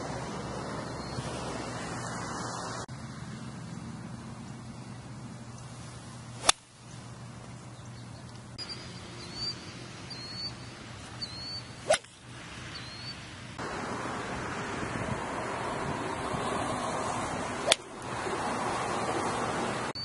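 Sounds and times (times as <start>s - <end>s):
golf club striking ball: 6.4s - 6.8s, 11.8s - 12.2s, 17.6s - 18.0s.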